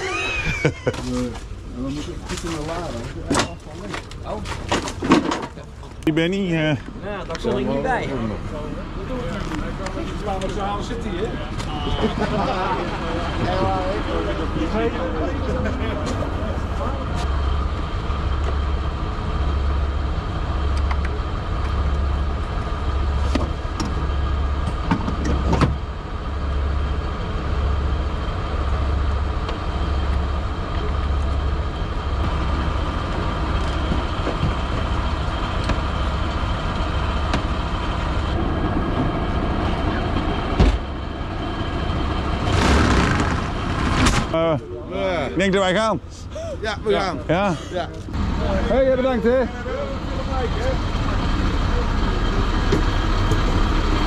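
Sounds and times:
truck engine idling: 0.0 - 54.0.

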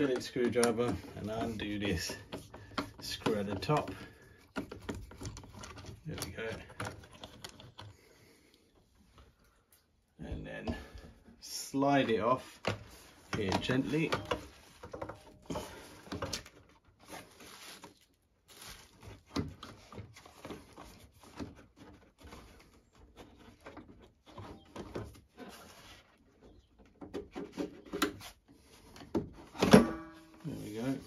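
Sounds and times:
plastic and rubber parts clicking: 0.0 - 8.0.

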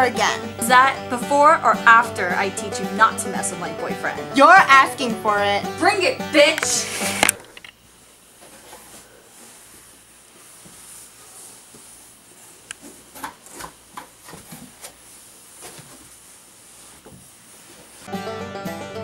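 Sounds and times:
background hiss: 0.0 - 19.0
cardboard boxes rustling and scraping: 8.4 - 18.1.

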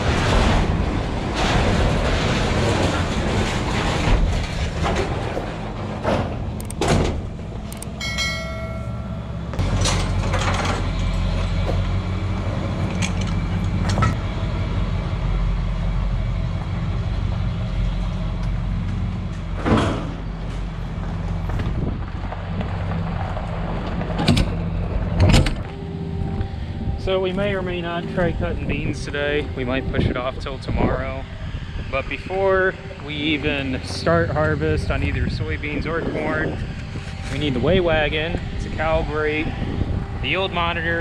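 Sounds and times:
wagon knocks and rattles: 0.0 - 7.4, 8.2 - 11.9
high whine: 7.6 - 11.5, 24.7 - 41.0.

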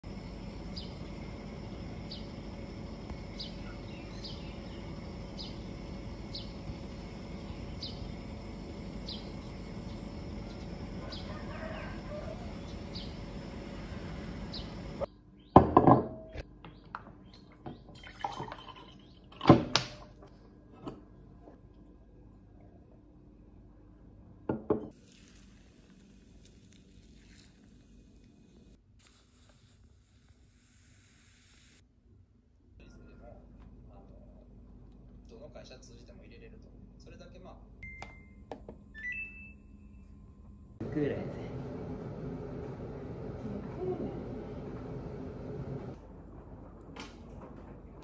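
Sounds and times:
steady background hum: 0.0 - 24.9, 32.2 - 48.0
bird chirping: 3.3 - 5.6
bottles knocking on wooden table: 15.6 - 16.3, 24.5 - 24.9
water pouring: 17.9 - 19.5, 24.9 - 28.3.

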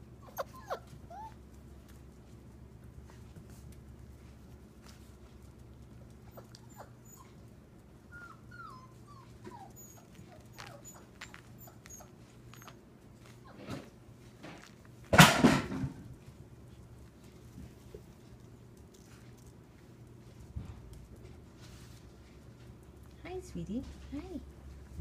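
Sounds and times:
puppies whimpering and squeaking: 0.1 - 1.4, 6.3 - 13.9.

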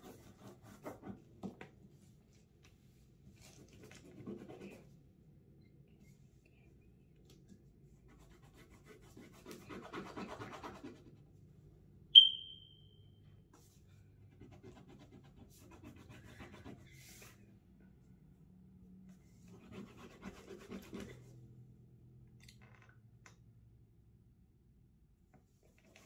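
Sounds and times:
crayon scratching on paper: 0.0 - 1.2, 3.4 - 4.9, 8.1 - 11.1, 14.3 - 17.4, 19.4 - 21.2
high-pitched electronic beep: 12.2 - 12.8.

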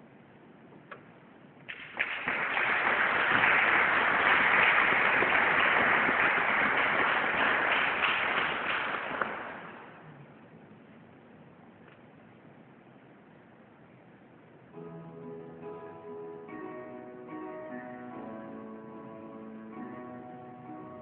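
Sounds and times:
audience applauding: 1.7 - 10.0.

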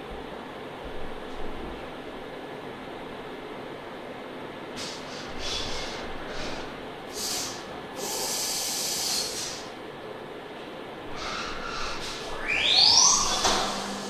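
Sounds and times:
low machine hum: 0.0 - 14.0
machine hissing in short bursts: 4.8 - 9.7.

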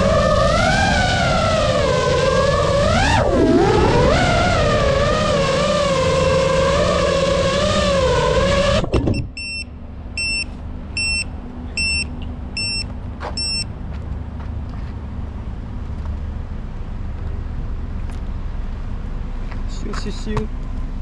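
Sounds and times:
drone motors whining: 0.0 - 13.7
short electronic beep: 9.0 - 13.7.

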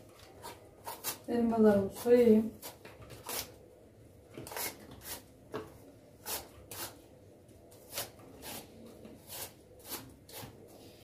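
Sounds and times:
peeler scraping apple skin: 0.2 - 3.6, 4.4 - 5.2, 7.8 - 10.6.

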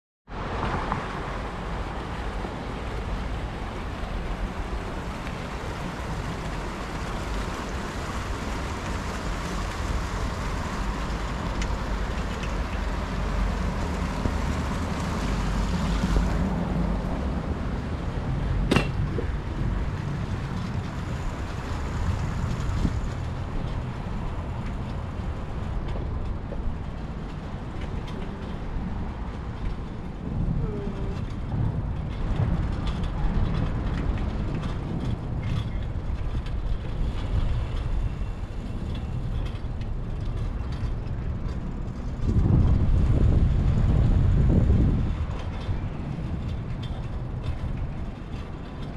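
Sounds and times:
wind rumbling on microphone: 0.3 - 48.9
fountains splashing in a pool: 1.2 - 18.0.

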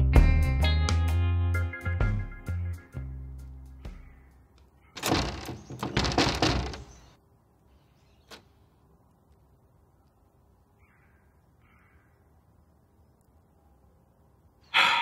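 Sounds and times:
metal screen door rattling: 4.9 - 7.2.

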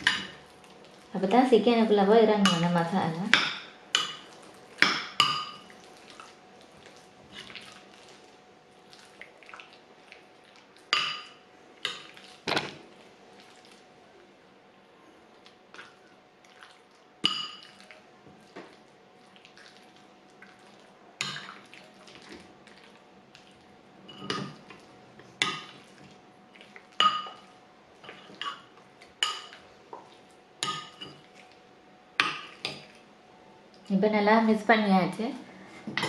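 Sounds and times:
squishing of thick paste: 5.7 - 10.9, 17.7 - 23.8.

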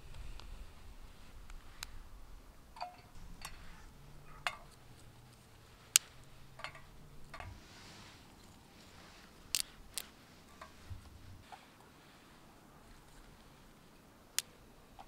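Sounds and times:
twigs clinking on metal stove: 2.8 - 11.1.

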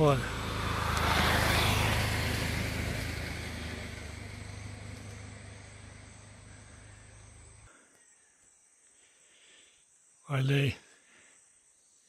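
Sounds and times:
distant engine drone: 0.0 - 7.8.

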